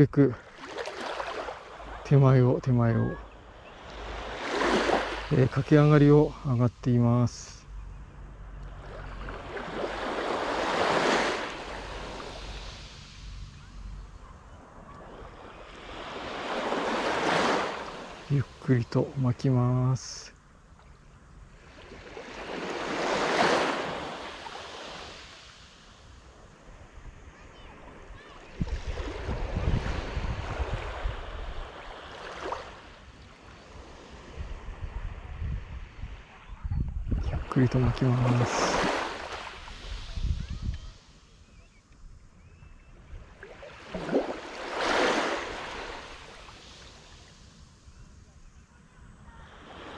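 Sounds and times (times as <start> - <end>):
gentle wave washing on sand: 0.0 - 7.7, 8.6 - 20.9, 21.5 - 36.5, 37.1 - 41.5, 43.0 - 49.9
wind buffeting microphone: 28.6 - 31.7, 34.4 - 37.5, 39.9 - 41.0.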